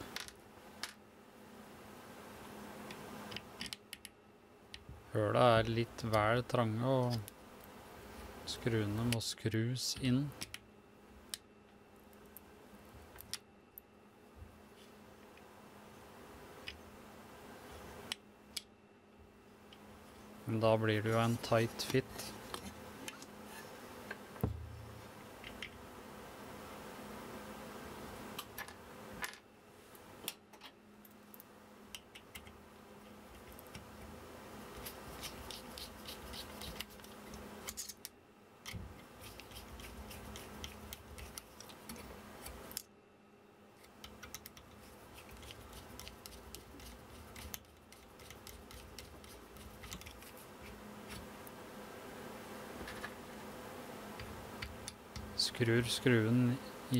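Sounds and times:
screws clicking and scraping: 39.0 - 42.8, 43.8 - 50.4.

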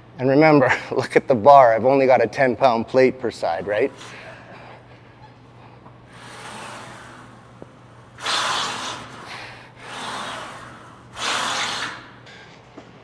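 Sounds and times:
man breathing heavily: 4.0 - 5.9, 8.4 - 10.7.

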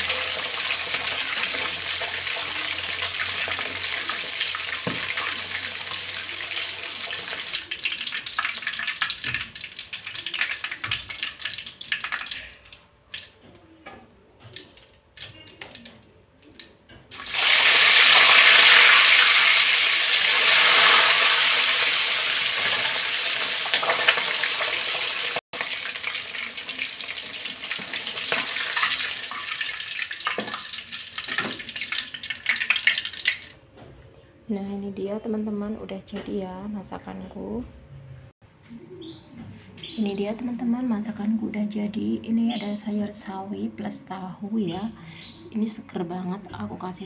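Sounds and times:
oil crackling: 0.0 - 13.4, 14.4 - 33.6
chicken deep-frying in oil: 0.0 - 33.6.

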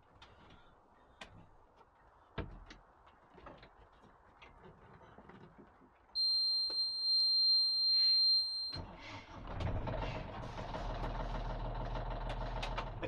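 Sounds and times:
alarm buzzer beep: 6.2 - 8.8
engine cranking and idling: 8.7 - 13.0.

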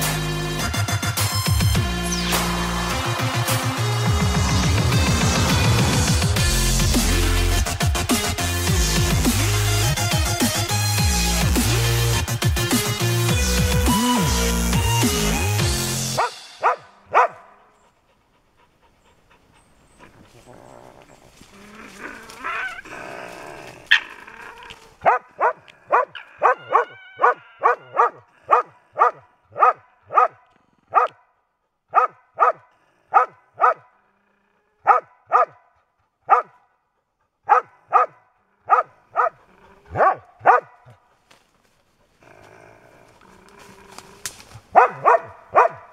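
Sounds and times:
raccoon dog barking yelps: 16.6 - 17.5, 23.9 - 24.2, 25.0 - 31.2, 31.9 - 33.8, 34.8 - 35.6, 36.3 - 36.6, 37.5 - 40.8, 44.7 - 45.9.

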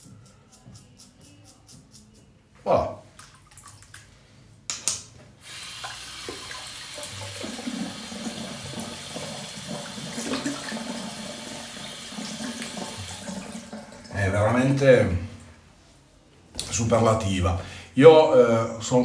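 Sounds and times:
tap running into sink: 5.8 - 10.9.

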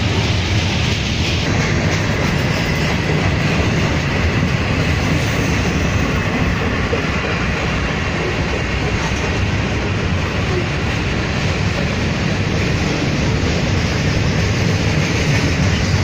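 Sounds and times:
train wheels running on rails: 0.0 - 16.0.

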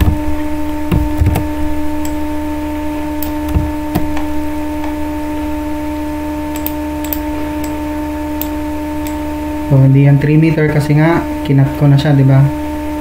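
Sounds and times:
low noise floor: 0.0 - 13.0
steady electrical hum: 0.0 - 13.0
mouse clicks: 6.5 - 7.8.

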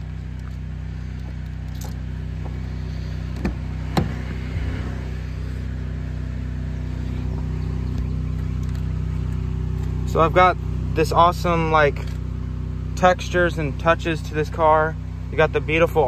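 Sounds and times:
low engine hum: 0.0 - 16.0.

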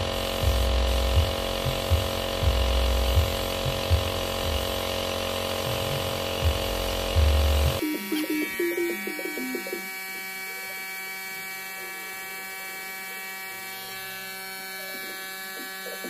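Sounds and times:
steady electric buzz: 0.0 - 16.0
short tune of stepping notes: 7.8 - 9.9.

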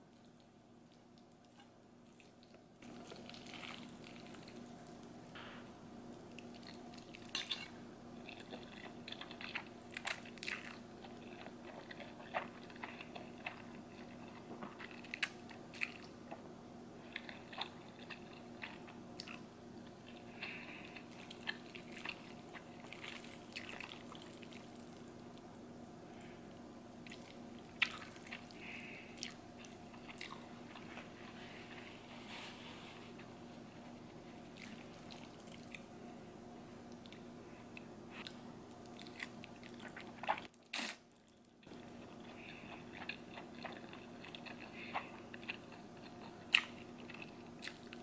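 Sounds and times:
person chewing and slurping noodles: 1.4 - 5.0, 6.3 - 16.4, 17.1 - 25.1, 41.6 - 48.0.

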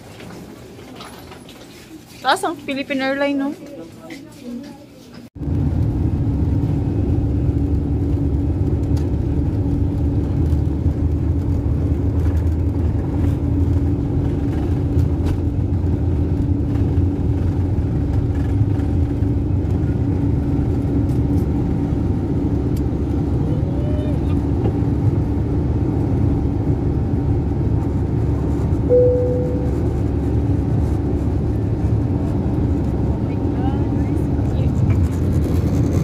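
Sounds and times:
jet engines low rumble: 5.3 - 36.0
steady cabin hum: 26.6 - 34.8.

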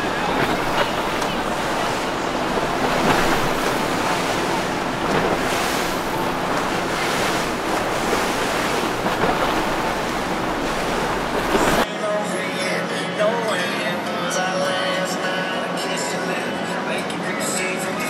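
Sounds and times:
low hum of boat engines: 0.0 - 11.8
wind buffeting microphone: 0.0 - 11.8
waves and rushing water: 0.0 - 11.9.

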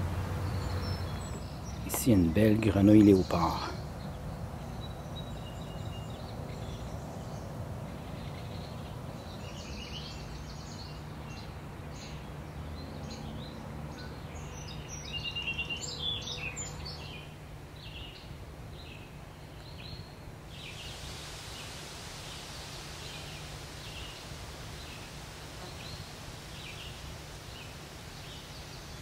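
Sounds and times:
birds chirping and calling: 0.0 - 21.0.

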